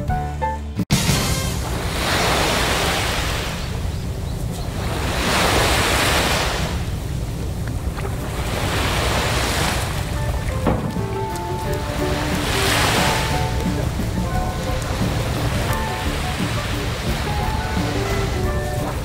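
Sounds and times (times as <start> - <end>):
background music: 0.0 - 1.8, 10.0 - 19.0
small waves washing onto shore: 0.9 - 19.0
wind on microphone: 1.6 - 19.0.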